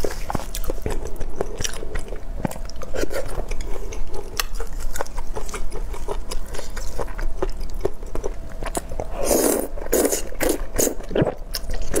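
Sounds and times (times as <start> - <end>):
loud noodle slurps: 9.2 - 11.3.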